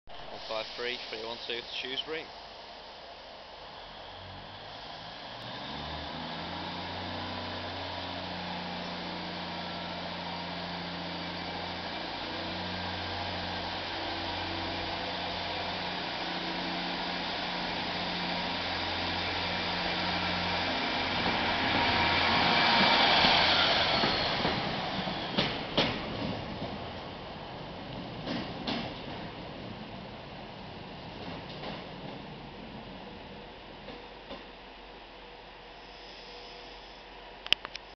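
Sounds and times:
train diesel engine: 0.1 - 37.8
train wheel clacks: 22.7 - 27.1, 27.9 - 29.4, 31.2 - 32.3.

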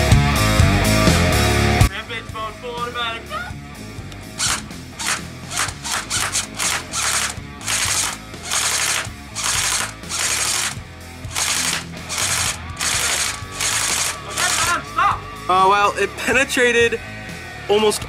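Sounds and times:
background music: 0.0 - 18.0
airsoft rifle firing bursts: 4.4 - 14.8.

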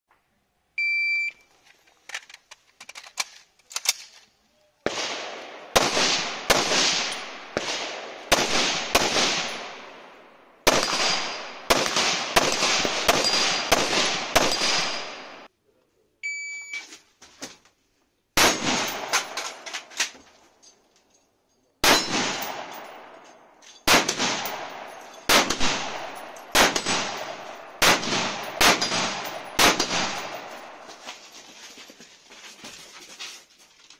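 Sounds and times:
shot timer beep: 0.8 - 1.4, 16.2 - 16.8
rapid rifle shots: 4.9 - 9.9, 10.7 - 15.5, 23.9 - 30.8.

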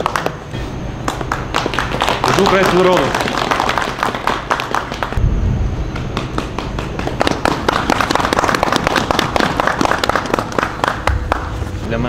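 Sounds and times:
group of people applauding: 0.0 - 0.4, 1.0 - 5.2, 6.0 - 11.6
low rumble: 5.1 - 7.4.

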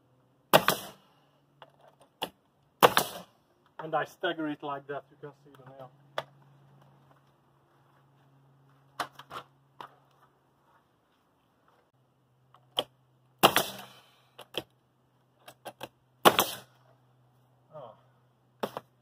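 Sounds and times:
nail gun shots: 0.5 - 1.0, 2.2 - 3.3, 12.8 - 14.0, 15.7 - 16.7.

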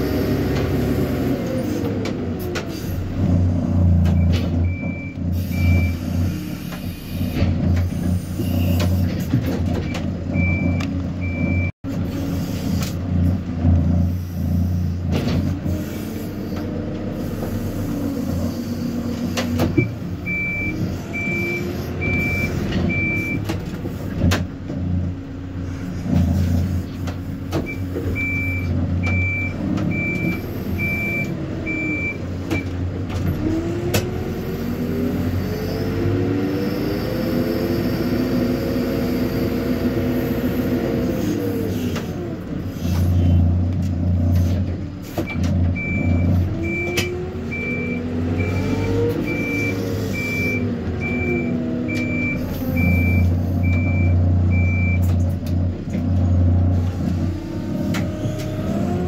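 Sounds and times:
diesel engine running: 0.0 - 59.0
reversing alarm beeps: 4.2 - 6.0, 19.8 - 23.4, 45.8 - 55.0.

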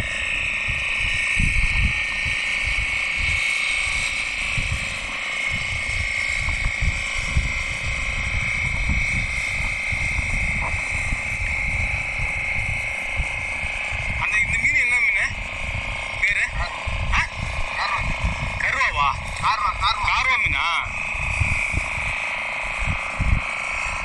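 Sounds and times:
wind buffeting on microphone: 0.0 - 24.0.

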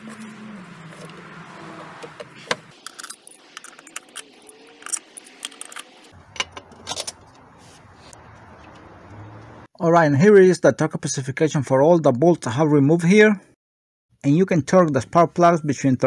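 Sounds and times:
metallic clinks of tools and bolts: 2.8 - 7.3.

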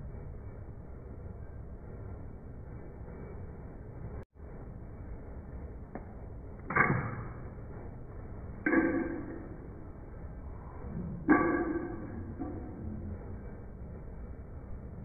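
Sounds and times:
sudden ringing hits: 8.6 - 15.0.

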